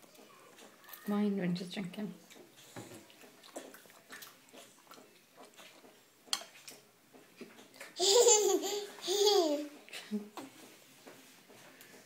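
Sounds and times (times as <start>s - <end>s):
baby laughing: 8.0s - 9.8s.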